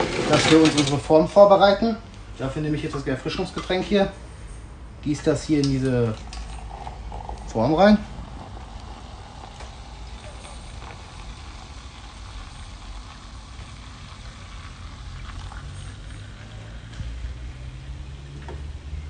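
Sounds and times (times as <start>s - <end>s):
cola splashing and fizzing: 5.7s - 19.0s.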